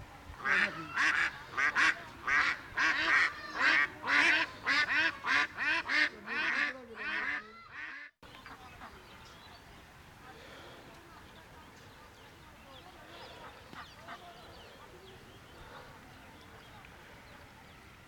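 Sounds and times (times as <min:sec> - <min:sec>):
waterfowl calling: 0:00.4 - 0:09.2, 0:13.0 - 0:17.2.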